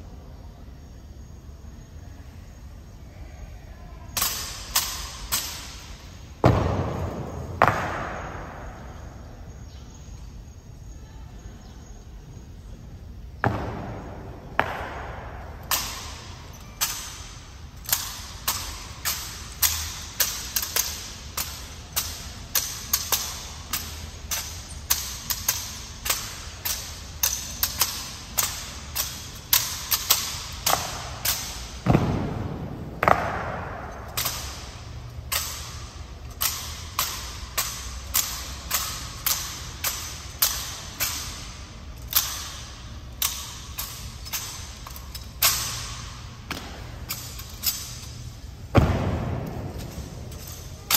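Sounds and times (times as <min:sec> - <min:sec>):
heavy echoing thuds: 0:05.3 - 0:09.6, 0:13.3 - 0:41.6, 0:45.7 - 0:47.4, 0:48.5 - 0:50.9.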